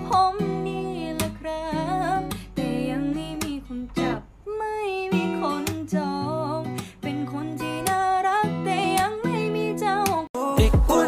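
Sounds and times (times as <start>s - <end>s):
strummed acoustic guitar chords: 5.1s - 11.0s.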